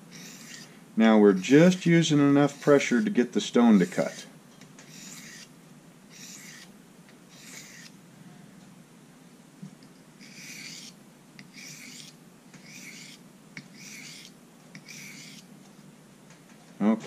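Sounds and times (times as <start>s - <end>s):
knife scraping on sharpening stone: 0.1s - 0.7s, 3.7s - 4.2s, 4.9s - 5.5s, 6.1s - 6.7s, 7.3s - 8.0s, 10.2s - 15.5s.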